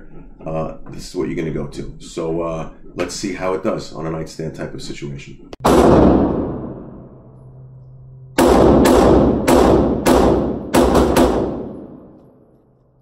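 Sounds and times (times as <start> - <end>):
pistol shots echoing indoors: 5.6 - 7.3, 8.4 - 12.8.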